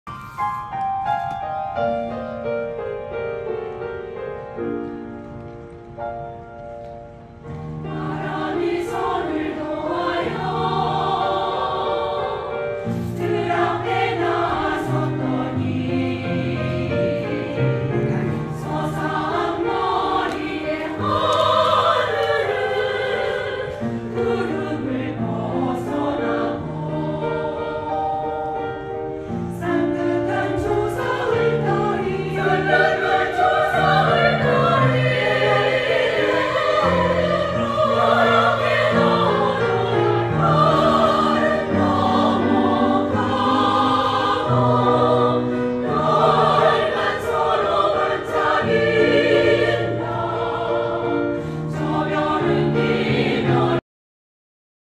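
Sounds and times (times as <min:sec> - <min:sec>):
choir singing: 0:07.5 - 0:53.8.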